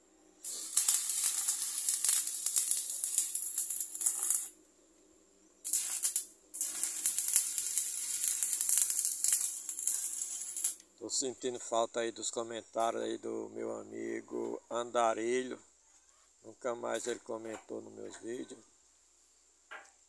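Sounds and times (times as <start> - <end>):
welding arc crackling: 0.4 - 4.6, 5.6 - 10.9.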